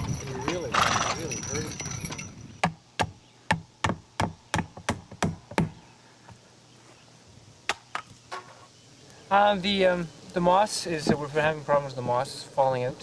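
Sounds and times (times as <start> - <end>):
hand tools knocking on wood: 2.6 - 5.8.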